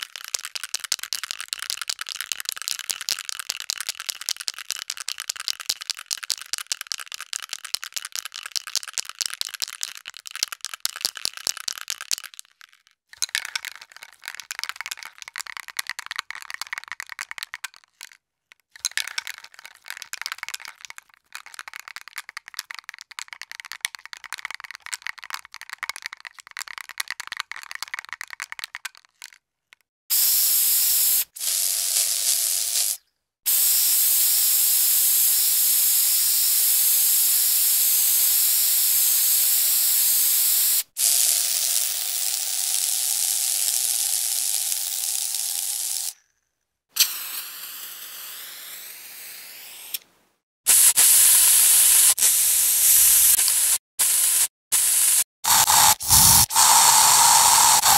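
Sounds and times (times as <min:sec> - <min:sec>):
spray can ball rattling: 0:00.0 - 0:18.2, 0:18.8 - 0:29.4, 0:30.1 - 0:46.2, 0:50.7 - 0:57.9
spray paint hissing: 0:30.1 - 0:46.2, 0:47.0 - 0:50.0, 0:50.7 - 0:57.9.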